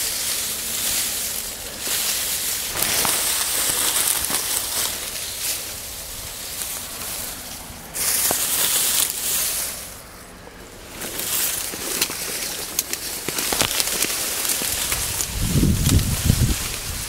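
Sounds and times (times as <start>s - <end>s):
dry reeds rustling: 0.0s - 17.0s.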